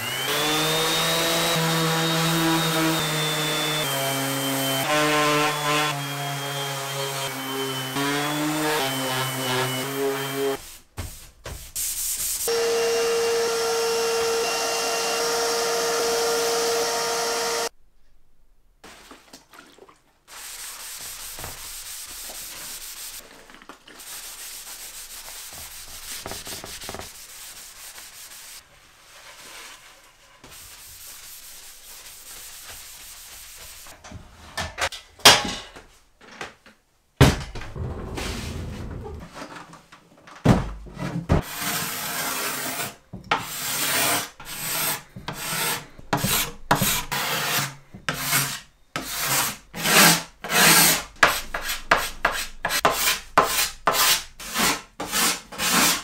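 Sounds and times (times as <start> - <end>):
orbital sander running: 0.0 - 3.9
cloth rubbing on wood: 23.9 - 33.9.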